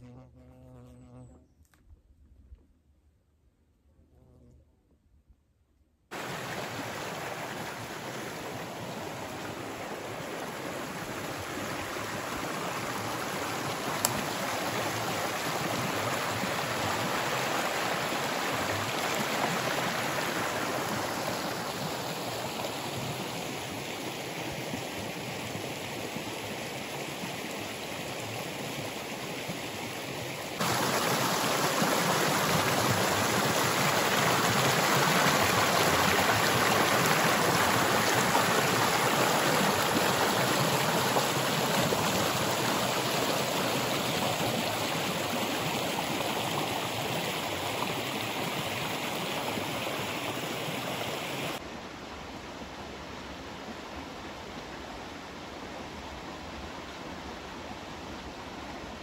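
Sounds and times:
stream rushing over stones: 0:06.1 - 0:51.7.

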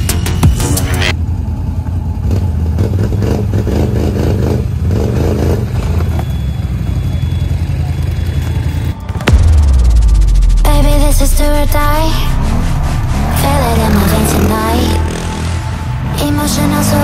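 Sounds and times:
quad engine revving: 0:10.8 - 0:17.0.

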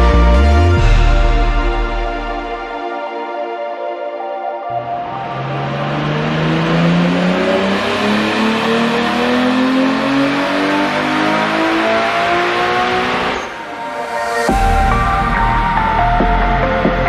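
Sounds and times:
car engine revving at full throttle: 0:04.7 - 0:16.4.

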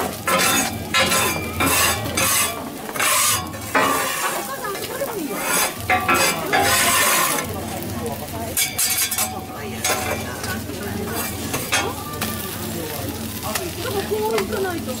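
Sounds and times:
metal spatulas scraping griddle: 0:00.0 - 0:07.8, 0:08.5 - 0:12.0
food sizzling: 0:00.0 - 0:15.0.

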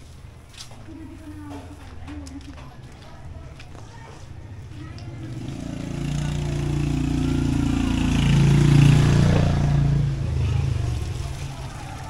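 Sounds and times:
vehicle engine passing by: 0:04.6 - 0:12.0.

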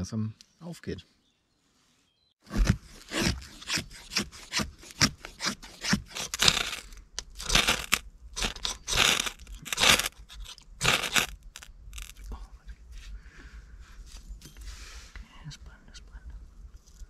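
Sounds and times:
ferro rod scraped with striker: 0:02.5 - 0:12.2.

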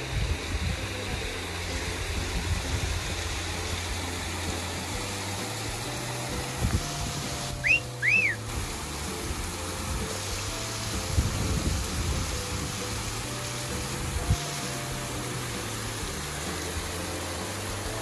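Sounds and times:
faint background music: 0:00.0 - 0:18.0
small waterfall rushing: 0:00.0 - 0:18.0
wolf whistle: 0:07.6 - 0:08.5.

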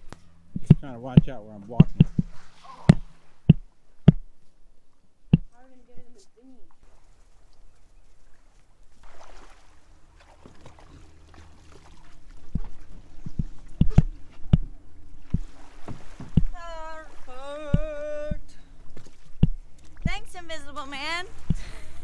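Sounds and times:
person calling out: 0:16.5 - 0:18.6.

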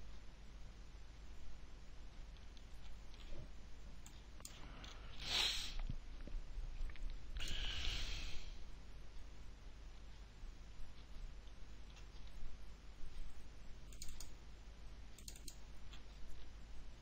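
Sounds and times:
room hiss: 0:00.0 - 0:17.0
computer mouse clicks: 0:04.0 - 0:05.0, 0:13.1 - 0:14.4, 0:15.1 - 0:16.5
breaths near microphone: 0:07.4 - 0:08.7.

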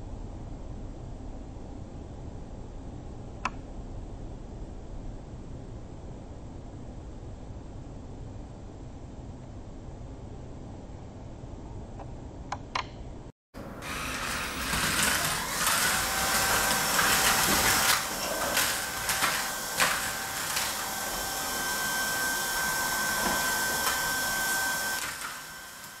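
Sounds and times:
cordless vacuum motor whine: 0:13.7 - 0:26.0.

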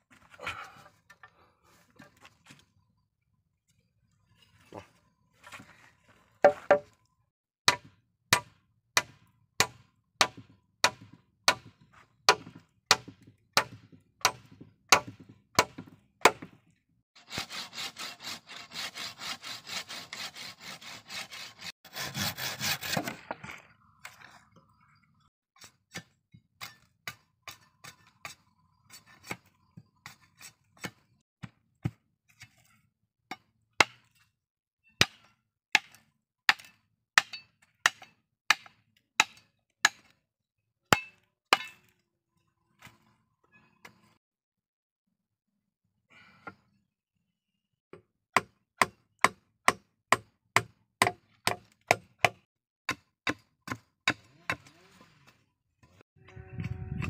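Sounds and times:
machete chopping bamboo: 0:07.7 - 0:16.6, 0:33.3 - 0:34.2, 0:35.0 - 0:40.1, 0:48.3 - 0:54.7
hand saw cutting bamboo: 0:17.2 - 0:23.3, 0:48.8 - 0:55.4.

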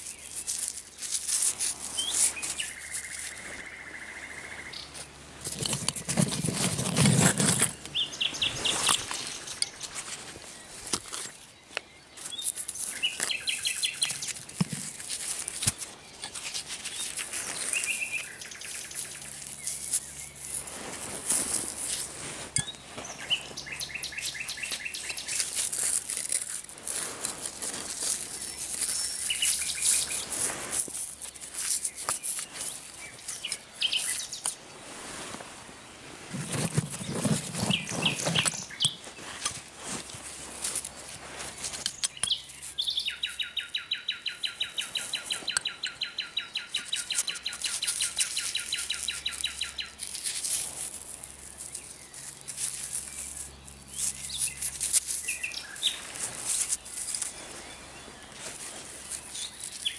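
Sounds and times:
nightingale singing: 0:00.0 - 0:20.6, 0:22.6 - 0:26.5, 0:27.8 - 0:30.6, 0:31.5 - 0:34.6, 0:36.4 - 0:39.5, 0:41.8 - 0:50.2, 0:51.4 - 0:59.9
hands scraping through soil: 0:00.0 - 0:59.9
handling metal objects: 0:04.9 - 0:18.2, 0:18.9 - 0:23.4, 0:36.3 - 0:42.8.

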